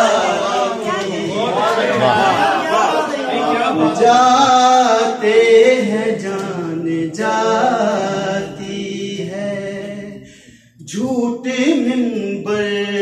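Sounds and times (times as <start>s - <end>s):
man singing unaccompanied: 3.3s - 13.0s.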